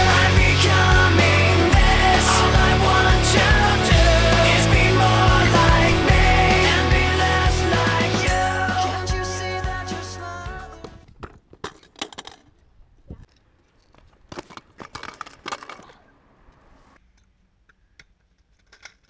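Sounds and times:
scooter clattering on paving: 11.1 - 16.1.

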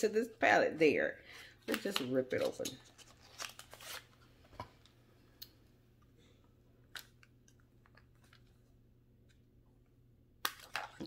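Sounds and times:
low steady hum: 0.0 - 11.0
plastic packaging crinkling and clicking: 1.7 - 5.0.

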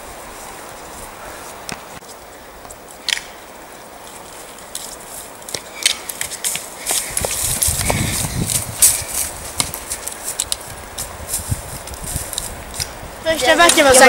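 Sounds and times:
footsteps crunching through dry bracken: 0.0 - 14.0
twig snapping: 3.0 - 3.3, 4.7 - 11.1.

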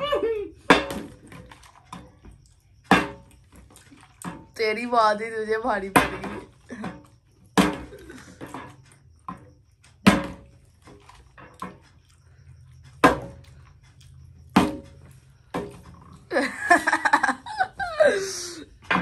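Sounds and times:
people laughing: 16.3 - 18.6.

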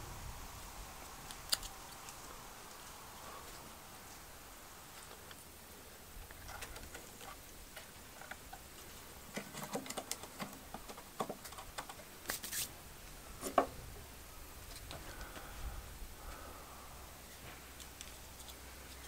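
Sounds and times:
wood scraping: 6.2 - 12.7
wood clicking and tapping: 9.3 - 12.1.

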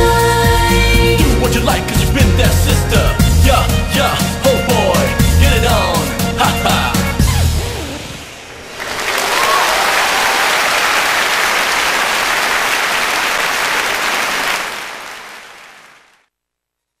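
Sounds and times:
audience applauding: 8.7 - 16.2.

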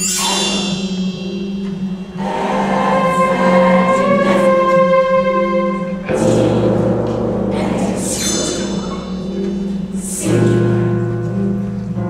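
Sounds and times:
instrumental accompaniment: 0.0 - 12.0
cast singing chorus: 2.0 - 11.6.

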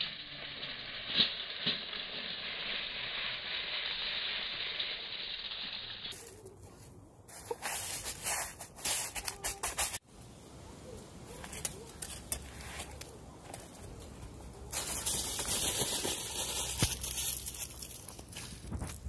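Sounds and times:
salt poured onto foil: 0.0 - 6.6, 14.7 - 18.3
salt crunching under hands: 14.7 - 19.0.

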